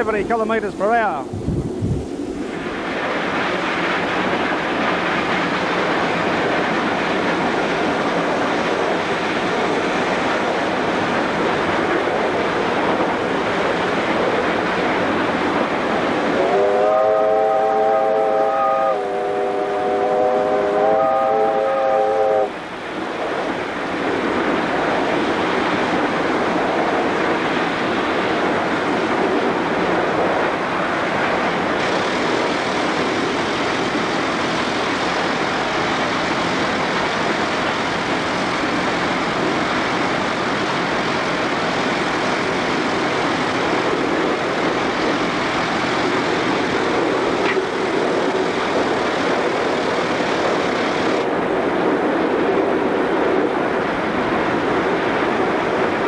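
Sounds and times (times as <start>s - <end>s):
high steam hiss: 0.0s - 56.0s
steam locomotive running: 2.4s - 56.0s.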